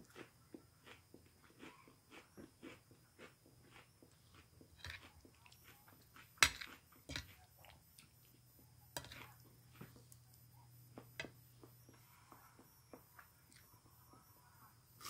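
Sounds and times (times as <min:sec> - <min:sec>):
person chewing food: 0:00.0 - 0:08.4.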